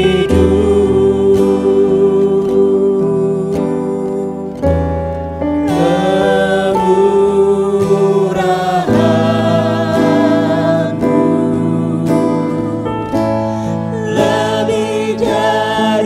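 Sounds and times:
man and woman singing in harmony: 0.0s - 4.6s, 5.6s - 16.0s
acoustic guitar: 0.0s - 16.0s
keyboard: 0.0s - 16.0s.

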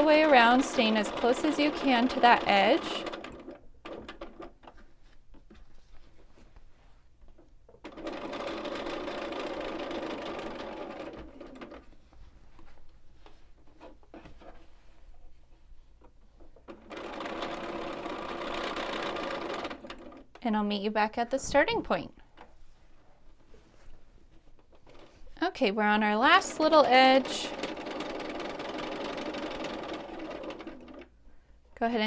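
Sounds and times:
sewing machine stitching: 0.0s - 4.6s, 7.8s - 11.9s, 16.6s - 20.4s, 24.7s - 25.3s, 26.2s - 31.1s.

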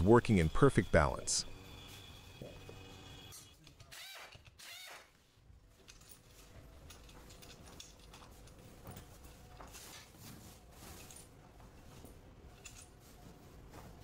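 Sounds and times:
metal parts clicking: 5.8s - 8.7s, 12.5s - 13.0s.

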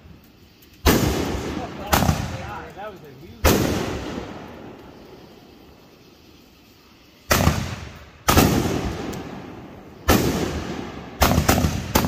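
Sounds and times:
loud firework booms with echo: 0.8s - 2.6s, 3.4s - 4.7s, 7.3s - 12.0s.

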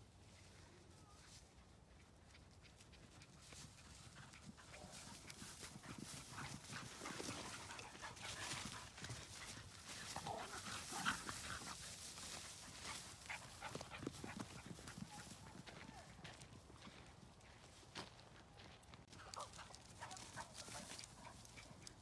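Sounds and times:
footsteps through long grass: 3.5s - 19.2s
small ticks: 19.3s - 22.0s.

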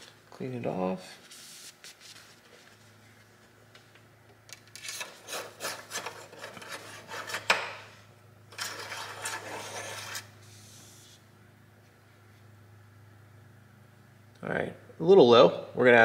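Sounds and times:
dipstick scraping: 4.8s - 7.6s, 8.5s - 11.1s.

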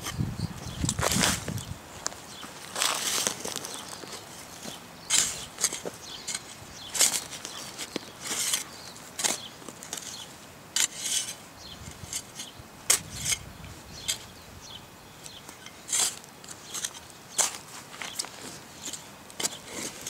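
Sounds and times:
shovel chopping into dry soil: 5.1s - 10.2s, 10.8s - 13.4s, 15.8s - 20.0s.

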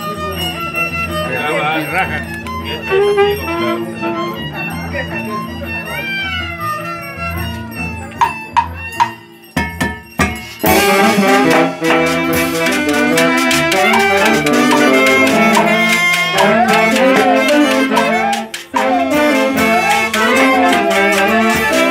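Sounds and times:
live band with saxophones leading: 0.0s - 8.9s, 10.4s - 21.9s
drum and cymbal beat: 8.2s - 21.9s.

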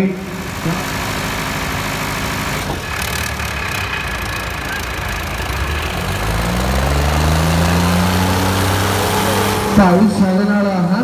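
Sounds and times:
tractor diesel engines revving: 0.0s - 11.0s.

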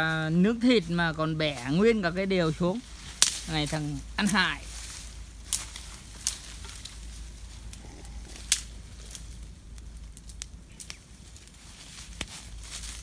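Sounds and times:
wood fire crackling: 0.0s - 13.0s
sharp snaps of fire: 2.8s - 13.0s.

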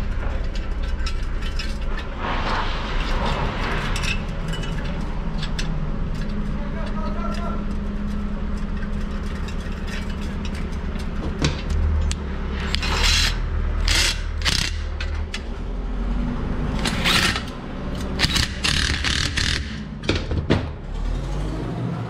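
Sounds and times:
steady low hum: 0.0s - 20.2s
impact wrench bursts: 12.6s - 15.1s, 16.8s - 19.9s.

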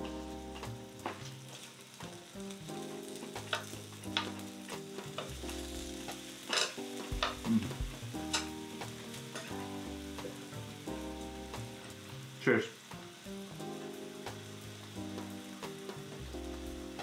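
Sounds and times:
meat sizzling on a grill pan: 0.0s - 17.0s
soft background music: 0.0s - 17.0s
metal tongs clicking on pan: 6.4s - 7.4s, 8.3s - 8.6s, 9.3s - 9.6s.

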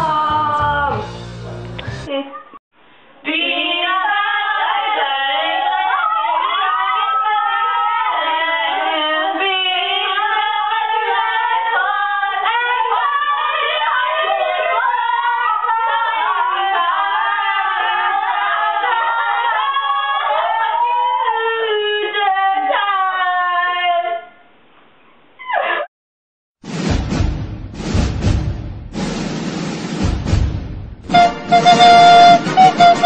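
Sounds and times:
voices singing together: 3.3s - 22.7s.

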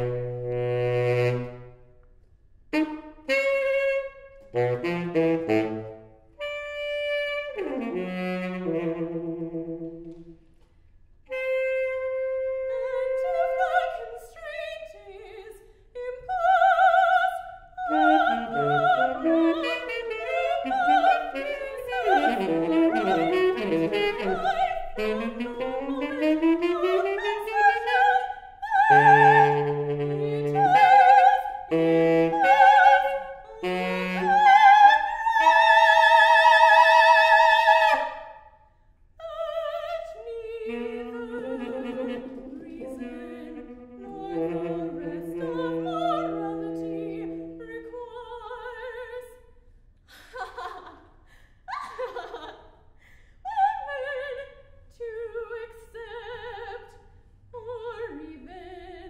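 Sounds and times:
saxophone: 0.0s - 10.4s, 11.3s - 15.0s, 17.8s - 38.4s, 39.3s - 49.0s
woman singing operatically: 11.3s - 38.1s, 39.2s - 49.4s, 53.5s - 57.0s, 57.6s - 59.0s.

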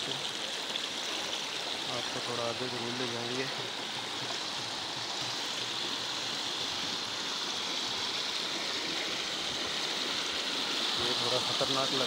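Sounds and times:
stream flowing: 0.0s - 12.0s.

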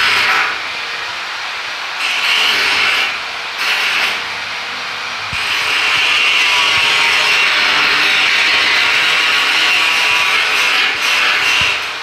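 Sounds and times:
electric power tool on steel: 2.0s - 4.4s, 5.3s - 12.0s.

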